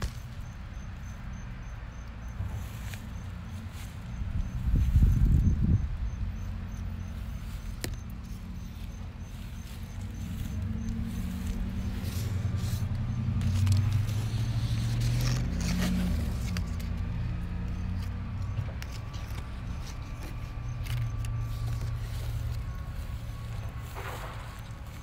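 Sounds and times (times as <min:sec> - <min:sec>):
low motor hum: 0:00.0 - 0:25.0
leaves brushing against phone: 0:07.1 - 0:25.0.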